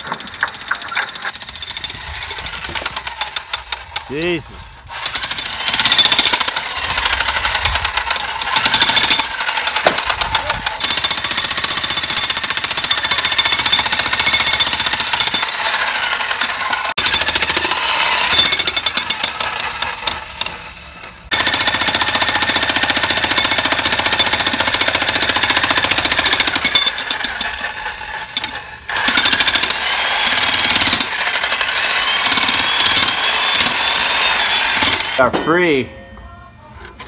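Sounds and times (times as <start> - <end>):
jackhammer breaking stone: 0.0 - 3.8, 4.9 - 20.5, 21.3 - 35.3.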